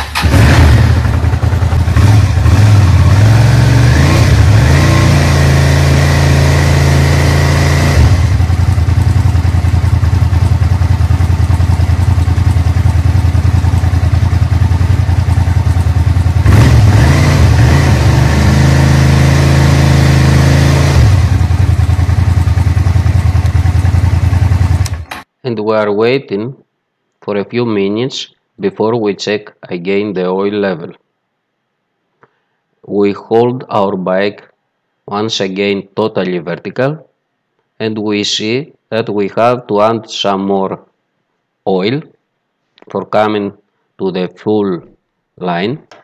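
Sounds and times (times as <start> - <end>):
motorcycle engine idling and revving: 0.0 - 25.3.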